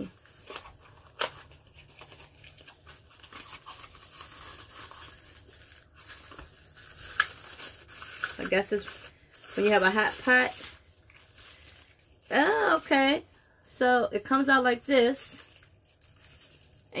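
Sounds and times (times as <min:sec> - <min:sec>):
plastic packaging crinkling and tearing: 0:00.0 - 0:13.3, 0:14.2 - 0:17.0.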